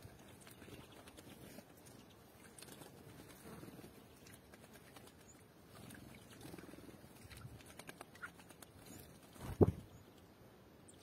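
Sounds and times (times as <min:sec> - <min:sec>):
birds bathing in water: 0:00.0 - 0:11.0.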